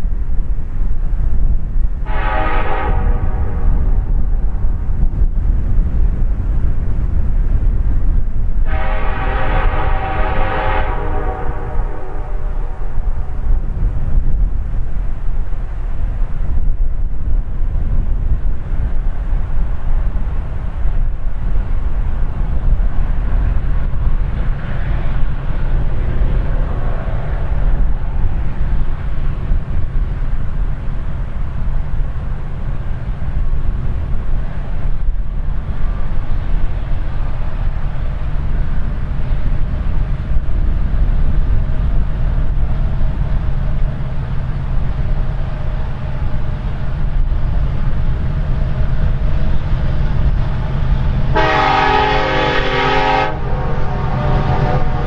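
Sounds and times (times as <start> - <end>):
diesel freight train rumbling: 0.0 - 55.0
wind buffeting microphone: 0.0 - 55.0
locomotive multi-note air horn: 2.1 - 4.0, 8.7 - 12.9, 51.3 - 55.0.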